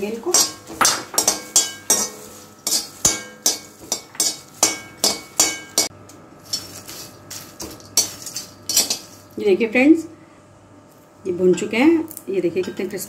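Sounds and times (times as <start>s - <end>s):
steel ladle scraping a pan: 0.3s - 9.4s.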